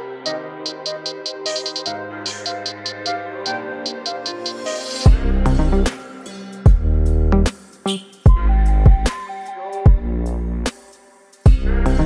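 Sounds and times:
electronic music with heavy bass: 0.3s - 12.0s.

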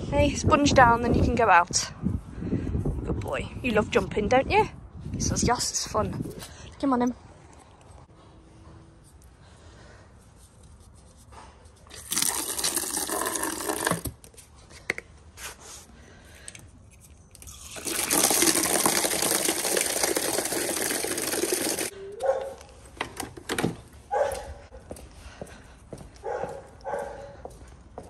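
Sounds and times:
hose water spraying into bucket: 11.9s - 14.2s, 17.4s - 21.9s.

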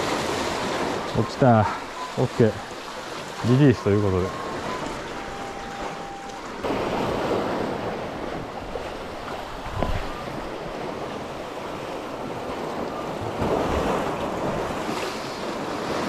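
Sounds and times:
sea waves washing: 0.0s - 16.0s
wind on microphone: 4.3s - 16.0s.

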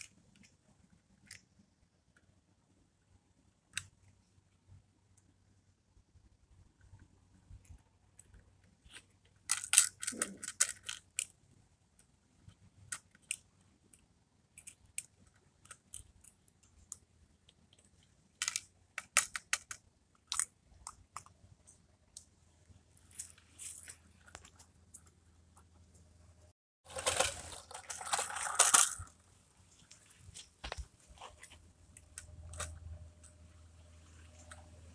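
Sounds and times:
toy truck plastic clicks and rattles: 0.0s - 2.3s, 6.8s - 22.3s, 26.9s - 29.2s, 30.6s - 33.4s
toy truck rattling on pavement: 8.9s - 11.4s, 26.9s - 29.2s.

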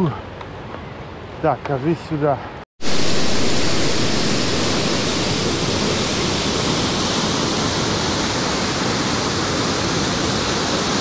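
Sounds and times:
waterfall roaring: 2.8s - 11.0s.

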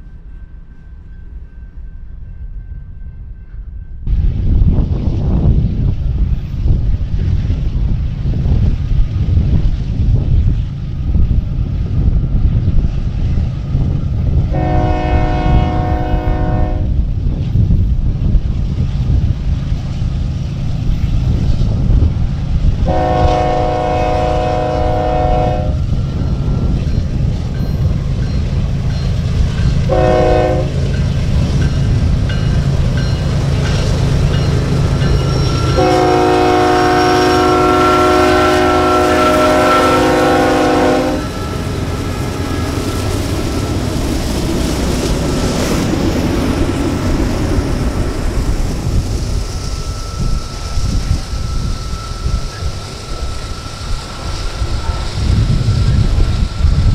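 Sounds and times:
train rumble: 0.0s - 56.9s
wind on microphone: 2.6s - 56.9s
locomotive air horn blasts: 14.5s - 17.0s, 22.8s - 25.8s, 29.9s - 30.8s, 35.6s - 41.6s.

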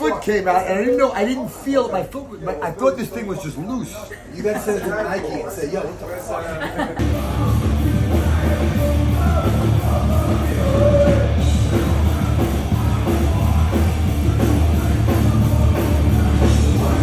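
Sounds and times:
metal band playing live: 7.0s - 17.0s.

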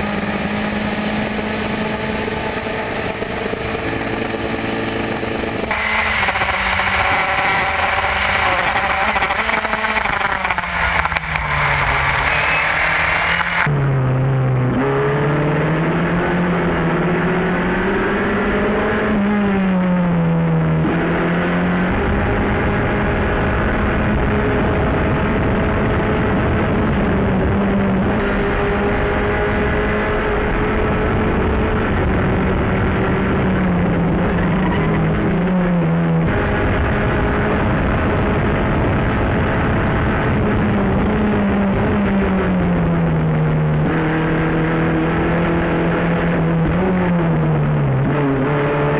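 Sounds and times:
race car engine running hard: 0.0s - 48.9s
wind and road hiss: 5.4s - 13.7s.

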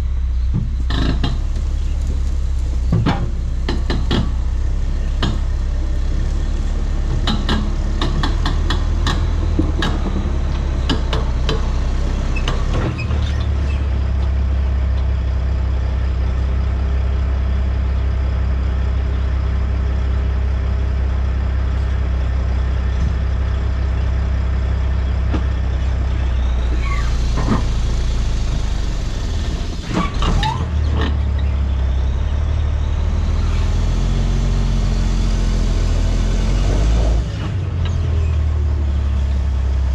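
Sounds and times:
truck diesel engine running: 0.0s - 39.9s
rattles and clanks: 0.5s - 14.4s.

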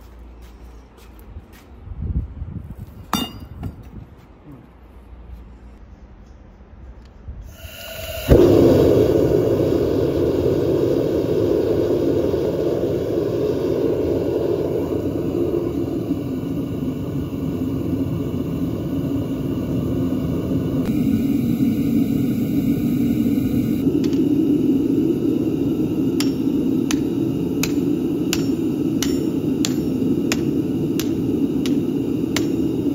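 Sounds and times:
gas burner igniting whoomp: 7.4s - 32.9s
gas burner roaring: 7.5s - 32.9s.

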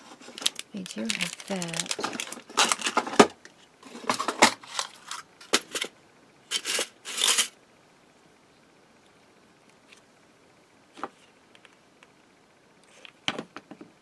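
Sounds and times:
plastic packet crinkling: 0.1s - 3.4s.

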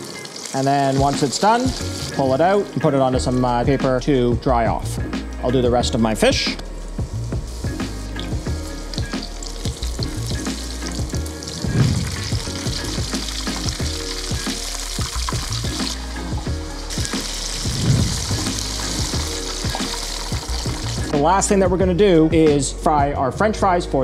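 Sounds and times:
fish deep-frying in hot oil: 0.0s - 3.6s, 6.9s - 21.2s.

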